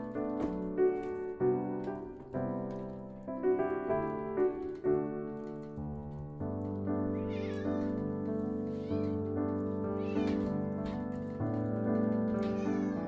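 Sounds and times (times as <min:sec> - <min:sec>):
background piano music: 0:00.0 - 0:13.0.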